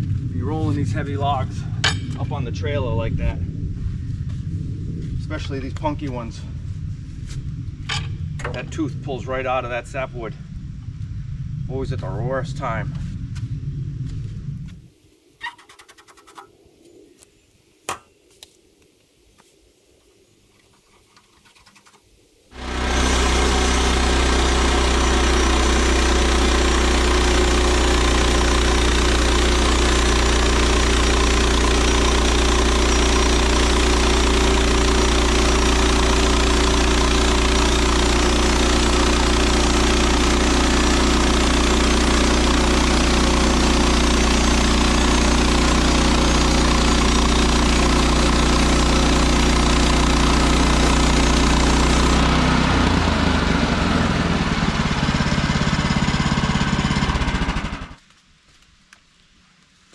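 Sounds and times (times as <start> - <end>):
sawmill gas engine running: 22.5 - 58.0.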